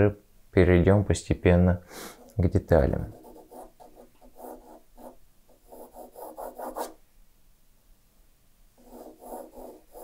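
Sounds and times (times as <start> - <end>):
pencil scratching on paper: 3.0 - 7.0, 8.8 - 10.0.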